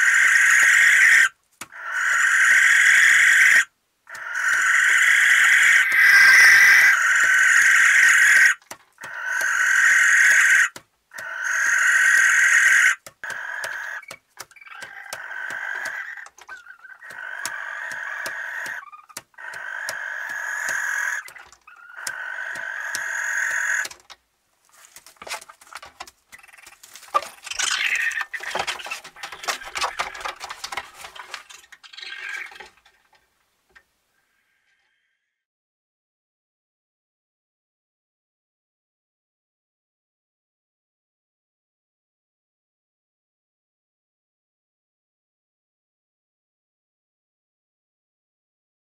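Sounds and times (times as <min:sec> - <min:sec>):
barn owls hissing calls: 0:00.0 - 0:23.9, 0:26.4 - 0:28.4
clicks and scuffling: 0:23.8 - 0:33.2.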